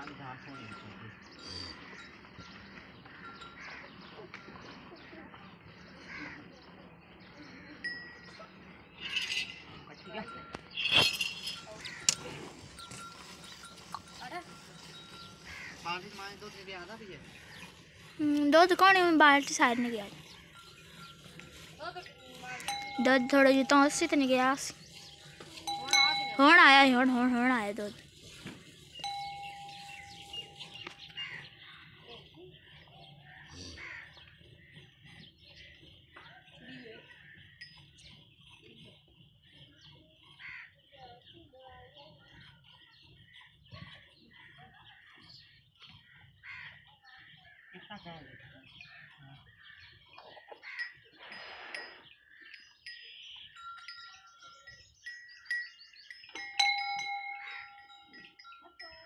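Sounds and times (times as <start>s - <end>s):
metal cow bells ringing: 0.0s - 5.6s, 7.8s - 31.8s, 37.1s - 39.0s, 48.7s - 59.0s
small birds chirping: 0.0s - 59.0s.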